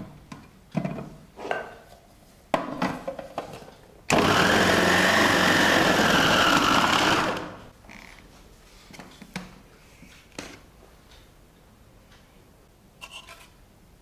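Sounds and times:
food processor motor whining: 0:04.1 - 0:07.6.

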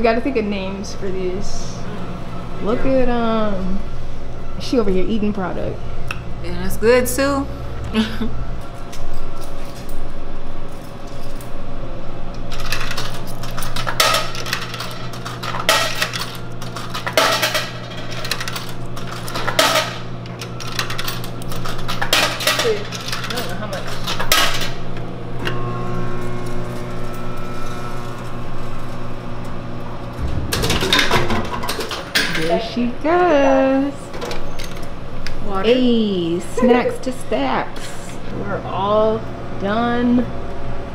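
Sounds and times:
coins clinking in vending machine: 0:12.5 - 0:24.8, 0:30.6 - 0:32.7
low hum: 0:24.9 - 0:40.9.

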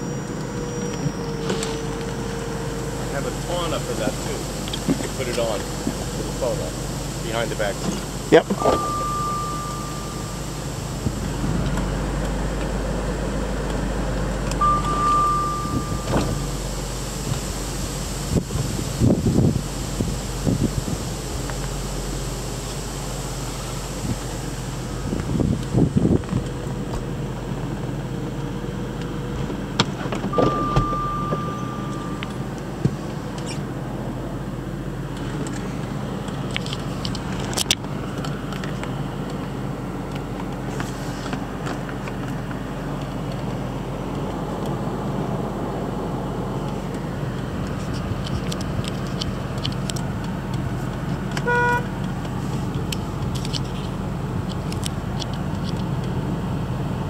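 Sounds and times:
steady electronic tone: 0:00.0 - 0:26.2, 0:30.3 - 0:34.1
air conditioning blowing: 0:00.0 - 0:57.0
car engine idling: 0:00.0 - 0:57.0
short chime: 0:08.6 - 0:10.9, 0:14.6 - 0:16.7, 0:30.4 - 0:32.4.

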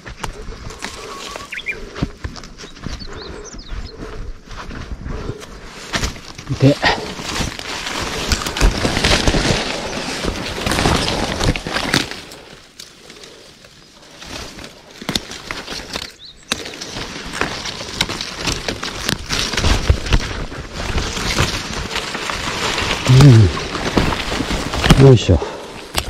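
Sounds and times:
undergrowth rustling: 0:00.0 - 0:26.0
twigs snapping: 0:05.8 - 0:26.0.

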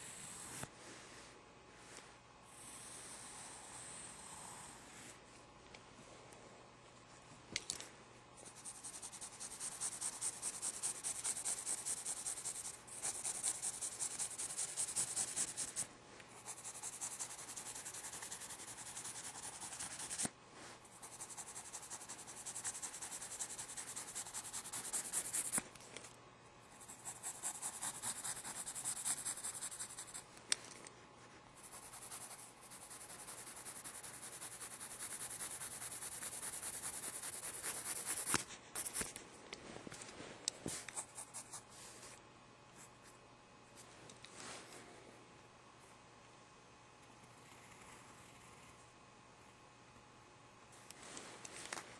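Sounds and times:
pencil scratching on paper: 0:08.4 - 0:20.3, 0:20.9 - 0:25.6, 0:26.8 - 0:30.3, 0:31.6 - 0:39.1.

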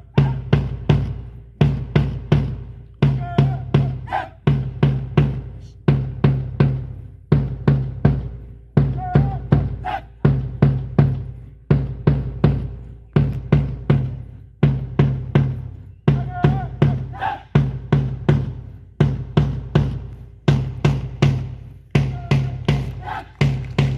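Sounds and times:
bass and snare marching drums: 0:00.0 - 0:23.9.

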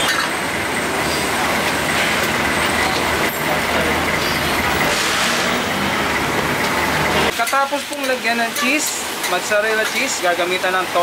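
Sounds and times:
loud rushing noise: 0:00.4 - 0:07.4.

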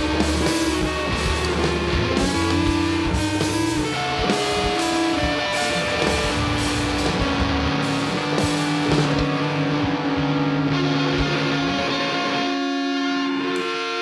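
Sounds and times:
bass guitar: 0:00.0 - 0:14.0
drums: 0:00.0 - 0:14.0
electric guitars: 0:00.0 - 0:14.0.

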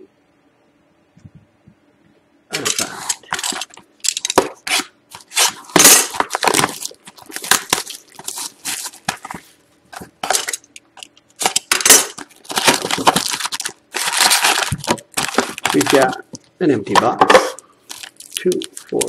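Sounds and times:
plastic wrap crinkling and tearing: 0:02.6 - 0:09.5, 0:11.4 - 0:16.4, 0:17.9 - 0:19.0.

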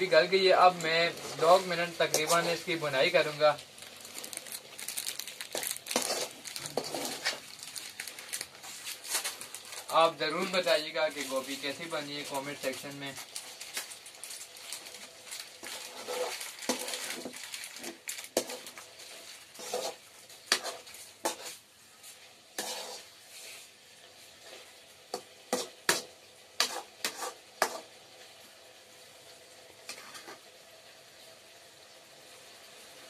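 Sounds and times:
faint sizzle: 0:00.0 - 0:33.0
metal spoon scraping a pan: 0:00.9 - 0:02.8, 0:05.5 - 0:07.5, 0:15.6 - 0:23.7, 0:24.3 - 0:28.0, 0:29.9 - 0:30.4.

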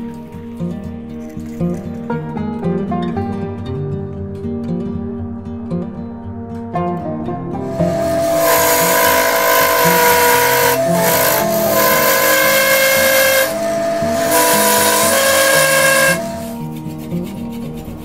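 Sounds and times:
lathe whine: 0:07.6 - 0:16.8
lathe tool scraping wood: 0:07.6 - 0:18.0.

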